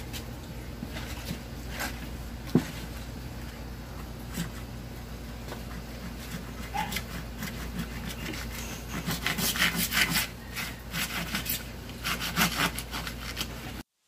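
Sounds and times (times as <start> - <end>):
handsaw cutting wooden board: 6.0 - 13.6.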